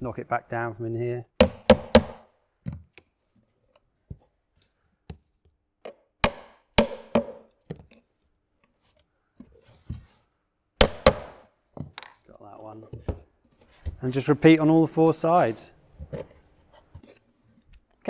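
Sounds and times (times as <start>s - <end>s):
hammer striking nails into wood: 1.4s - 2.3s, 5.9s - 7.5s, 10.8s - 11.5s.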